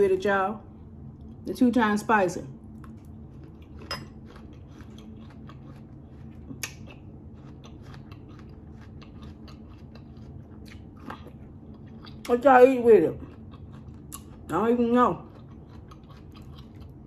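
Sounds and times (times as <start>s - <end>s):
steady low hum: 0.0s - 17.0s
person chewing food: 2.7s - 12.4s, 13.1s - 14.5s, 15.2s - 17.0s.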